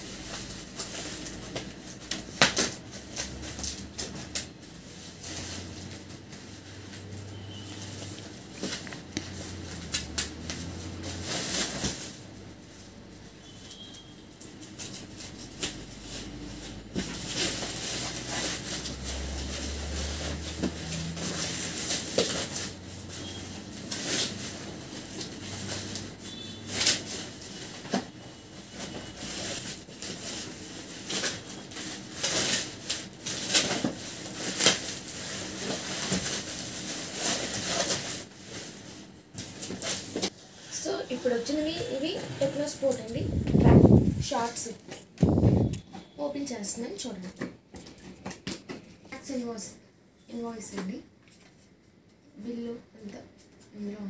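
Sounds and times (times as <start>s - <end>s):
plastic rustling and crinkling: 0.0s - 49.7s
scissors cutting plastic: 8.2s - 11.0s.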